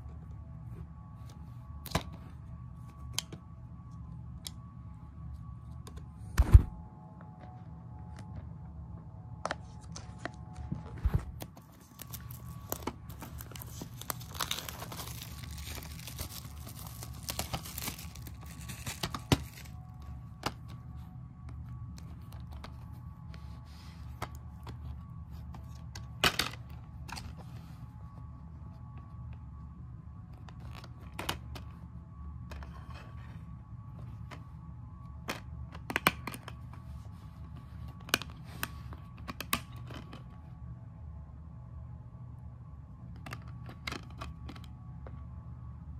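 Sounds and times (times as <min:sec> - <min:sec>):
low hum: 0:00.0 - 0:45.9
shrink-wrap tearing and crinkling: 0:11.6 - 0:19.8.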